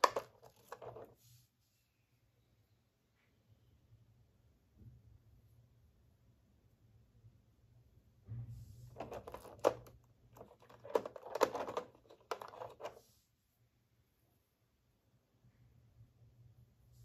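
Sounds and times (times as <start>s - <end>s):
plastic tray crinkling and clicking: 0.0s - 1.2s, 9.0s - 13.0s.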